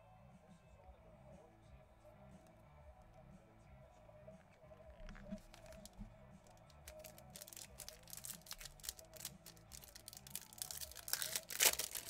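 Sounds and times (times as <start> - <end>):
quiet background music: 0.0 - 12.0
foil wrapper crinkling and clicking: 5.1 - 6.0, 6.7 - 12.0.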